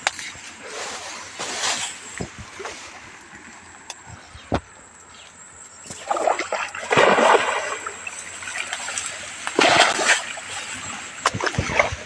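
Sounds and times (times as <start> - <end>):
man wading through water: 6.0 - 12.0.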